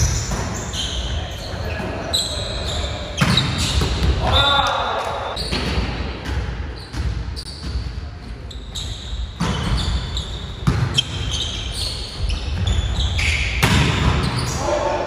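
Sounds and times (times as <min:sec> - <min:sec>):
shoes squeaking on wooden floor: 0:08.4 - 0:13.5.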